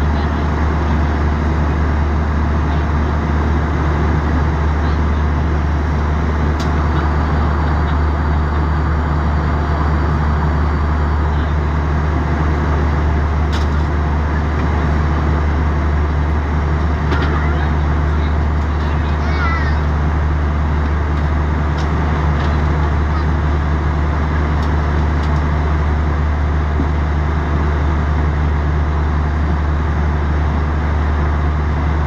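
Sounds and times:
airliner cabin drone: 0:00.0 - 0:32.0.

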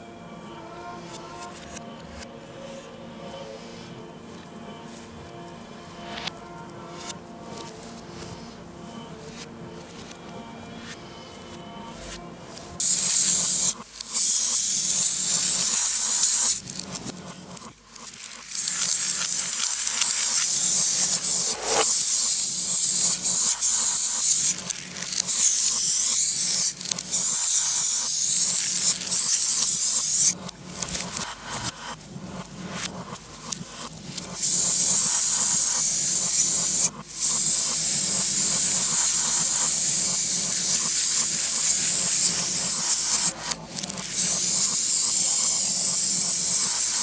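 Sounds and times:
spray can hissing: 0:12.8 - 0:16.7, 0:18.4 - 0:30.4, 0:34.4 - 0:43.3, 0:44.0 - 0:47.0.

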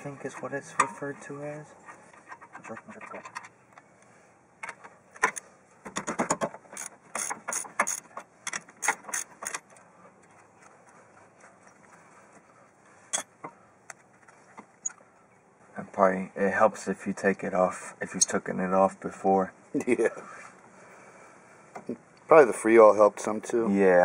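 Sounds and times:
metal clink: 0:00.8 - 0:01.1.

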